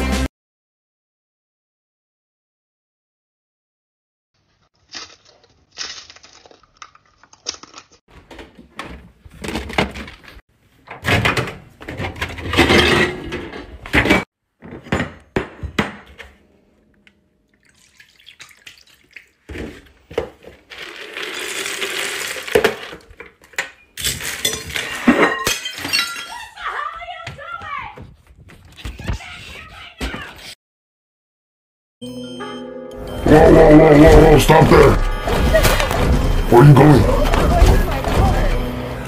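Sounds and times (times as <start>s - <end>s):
dry cereal pouring: 20.7s - 23.0s.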